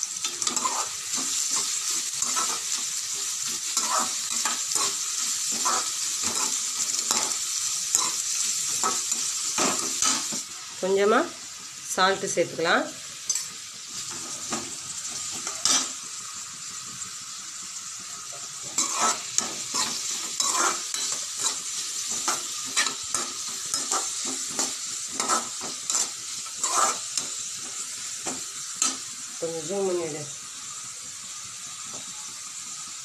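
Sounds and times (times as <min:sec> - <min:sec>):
vegetables sizzling in a pan: 0:00.0 - 0:33.0
steel spatula scraping a pan: 0:00.1 - 0:10.4, 0:15.2 - 0:16.0, 0:18.6 - 0:29.0.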